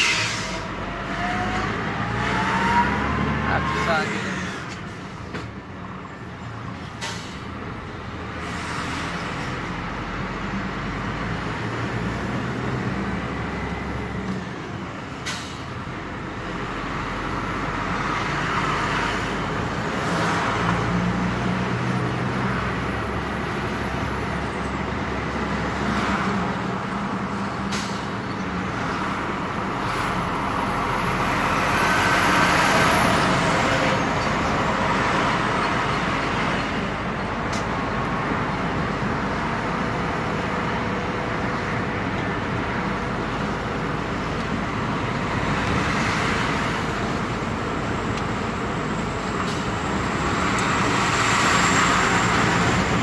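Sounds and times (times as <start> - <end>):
truck diesel engine from cab: 0.0 - 53.0.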